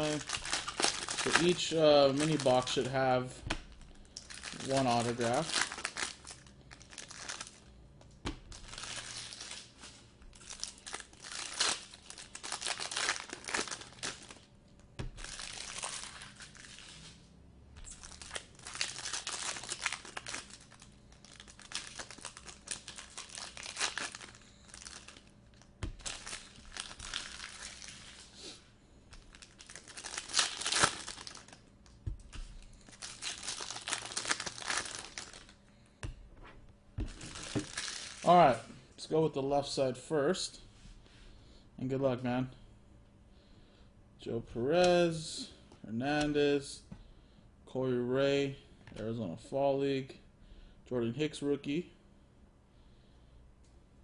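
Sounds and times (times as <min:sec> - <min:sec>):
foil wrappers crinkling: 0:00.0 - 0:07.7, 0:08.5 - 0:14.5, 0:15.1 - 0:17.2, 0:17.8 - 0:28.5, 0:29.1 - 0:35.6, 0:37.0 - 0:38.6.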